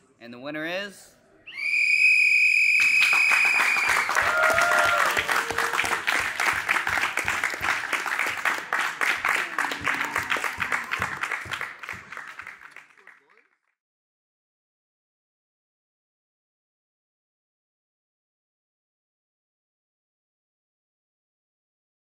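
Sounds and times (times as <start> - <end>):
hands clapping: 2.8 - 13.8.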